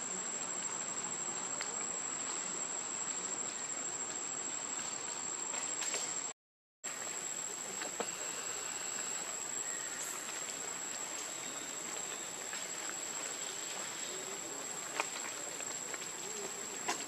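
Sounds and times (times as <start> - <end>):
constant hiss: 0.0 - 17.0
faint clicks and rustles: 7.1 - 17.0
high-pitched insect drone: 8.0 - 10.5.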